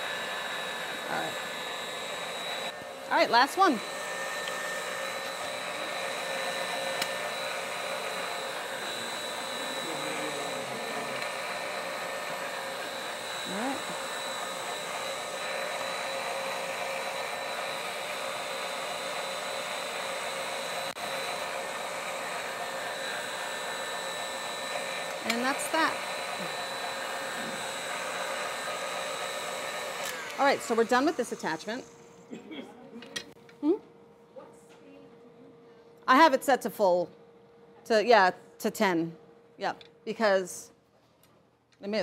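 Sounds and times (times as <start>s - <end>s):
stand mixer motor humming: 0.0s - 32.2s.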